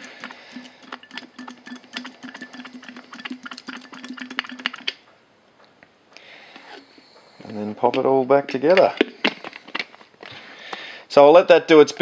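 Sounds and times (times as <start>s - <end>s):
liquid ticking and pattering: 0.0s - 5.0s.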